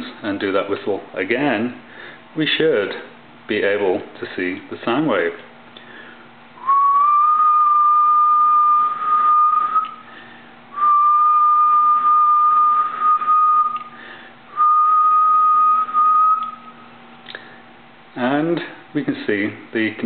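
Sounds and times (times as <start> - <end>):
man whistling long notes: 6.6 - 17.4.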